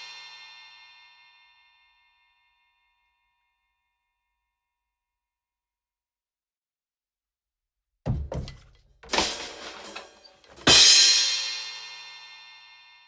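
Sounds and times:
low drum hits: 8.1s - 8.8s.

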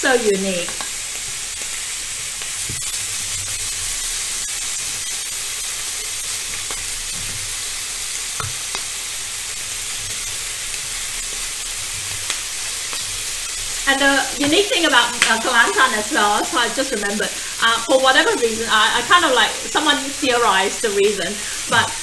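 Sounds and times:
chicken sizzling on grill pan: 0.0s - 22.0s.

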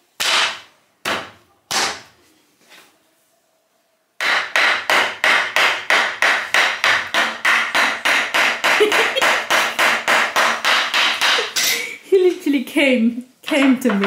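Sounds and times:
hammer striking rapidly: 4.2s - 11.8s.

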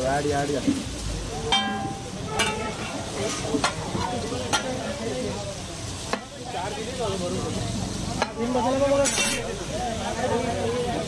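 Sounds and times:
butter sizzling on a griddle: 0.0s - 11.0s
metal ladle knocking on griddle: 1.5s - 4.8s.

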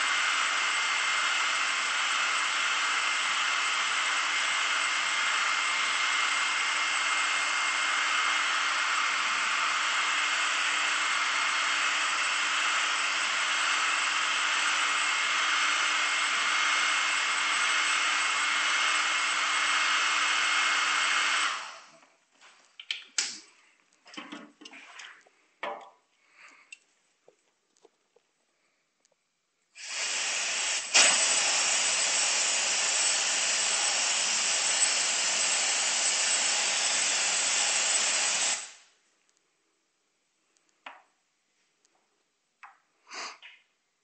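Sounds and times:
hair dryer blowing with whine: 29.8s - 32.2s.

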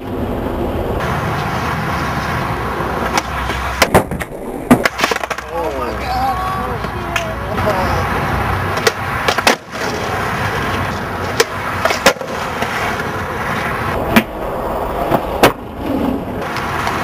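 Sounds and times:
skateboard wheels rolling on concrete: 0.0s - 17.0s
skateboard popping and landing clacks: 1.3s - 5.8s, 8.7s - 14.4s, 15.0s - 17.0s.

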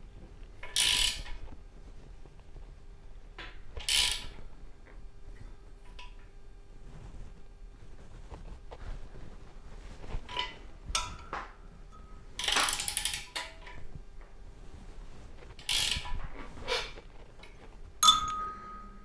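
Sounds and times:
ratchet wrench clicking: 0.7s - 1.3s, 3.8s - 4.3s, 12.4s - 13.5s, 15.6s - 16.1s.

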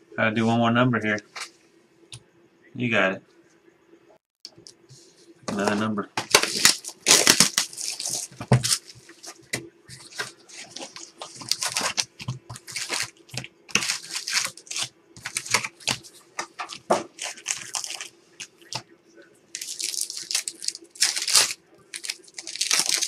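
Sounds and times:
faint steady hum: 0.0s - 23.0s
foil wrapper crinkles: 6.3s - 18.8s, 19.5s - 23.0s.

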